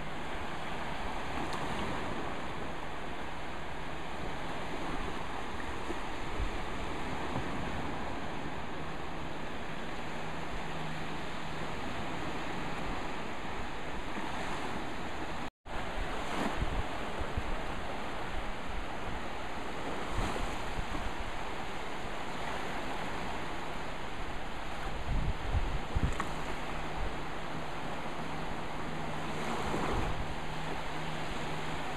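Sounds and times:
waves washing over sandy shore: 0.0s - 31.9s
wind buffeting microphone: 11.8s - 21.5s, 24.1s - 27.7s.

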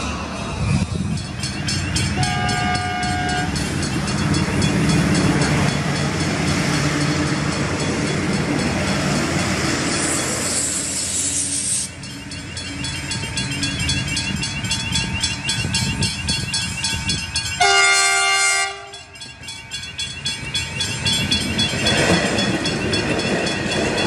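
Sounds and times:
railcars rumbling past: 0.0s - 24.0s
train horn: 2.2s - 3.5s, 17.6s - 19.1s
level crossing bells ringing: 11.9s - 24.0s.

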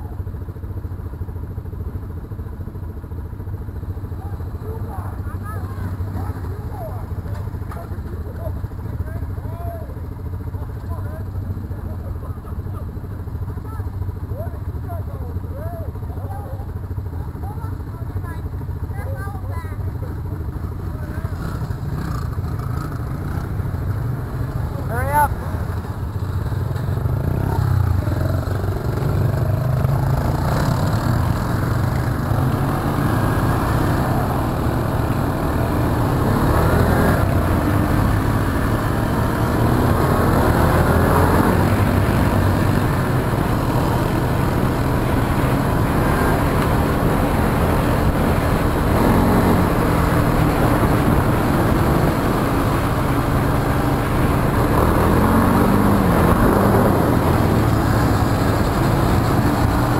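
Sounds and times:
atv engine revving: 15.5s - 59.9s.

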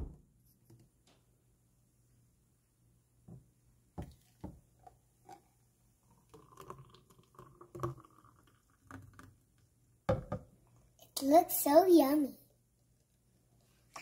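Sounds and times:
thick liquid pouring into cup: 4.0s - 9.8s
blender jar knocks: 10.1s - 10.5s.

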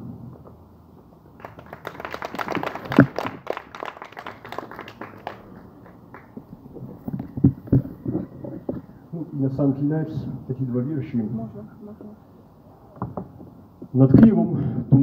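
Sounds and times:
audience applauding: 1.4s - 7.4s.

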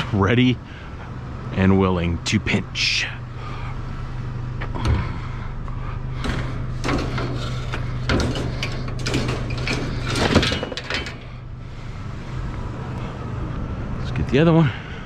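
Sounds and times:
steady low hum: 0.0s - 15.0s
metal clanks and rattles: 6.1s - 12.0s.

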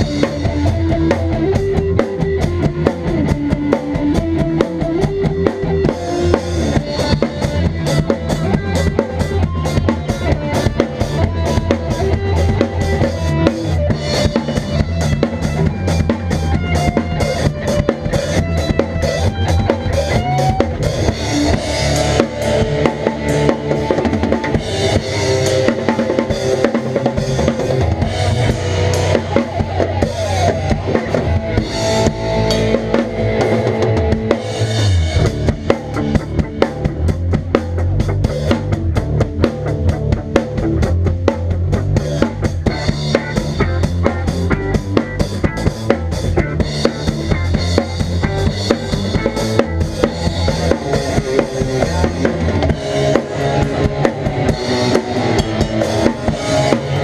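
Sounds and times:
bass guitar: 0.0s - 57.0s
drum kit played hard: 0.0s - 57.0s
electric guitar: 0.0s - 57.0s.

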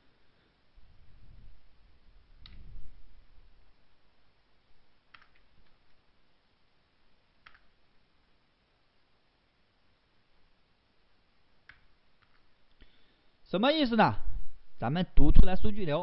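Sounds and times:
computer mouse clicks: 5.1s - 6.0s, 7.4s - 7.7s, 11.6s - 12.5s.

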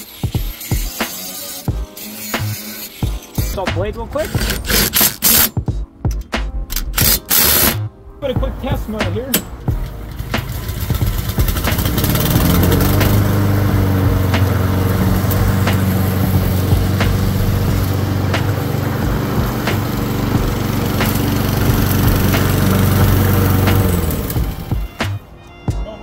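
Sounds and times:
lawn mower engine running: 3.5s - 5.6s, 6.8s - 7.9s, 8.9s - 25.3s.

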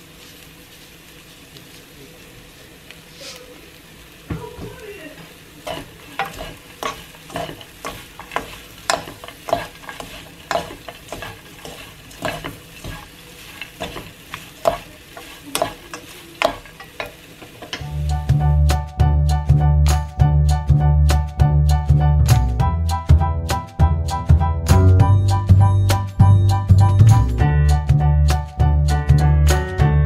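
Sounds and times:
wooden spoons scraping a wok: 5.2s - 18.4s
music: 17.8s - 30.0s.

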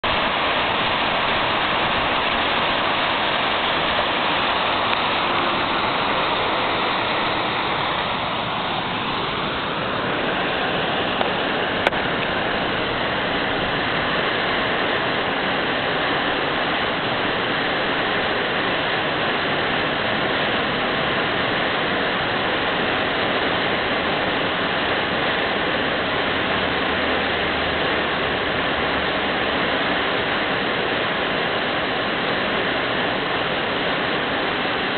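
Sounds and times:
water rushing over rocks: 0.0s - 34.9s.

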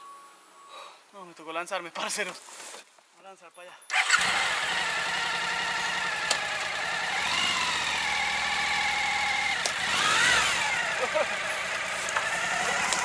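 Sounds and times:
motorcycle engine at low revs: 3.9s - 13.0s.

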